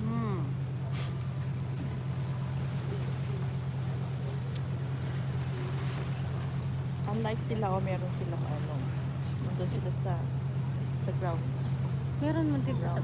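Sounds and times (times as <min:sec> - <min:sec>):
boat engine humming: 0:00.0 - 0:13.0
wake water rushing: 0:00.0 - 0:13.0
wind: 0:00.0 - 0:13.0.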